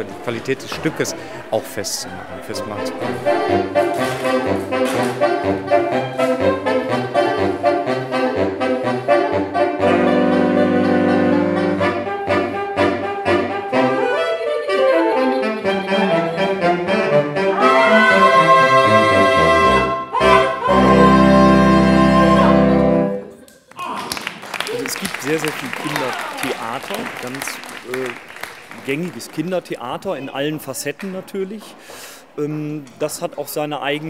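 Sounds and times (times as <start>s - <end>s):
saxophones playing jazz: 0.0s - 23.4s.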